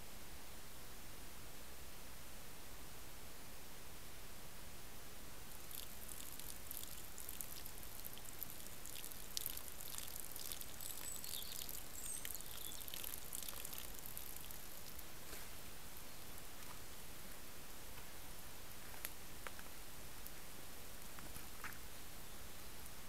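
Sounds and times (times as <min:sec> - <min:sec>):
deer nibbling forest floor: 0:05.5 - 0:17.4.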